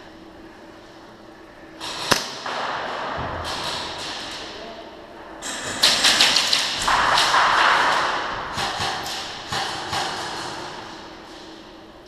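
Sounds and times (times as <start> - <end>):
airsoft gunfire: 1.8 - 4.3, 5.6 - 10.6
pellets hitting plywood walls: 5.5 - 10.8.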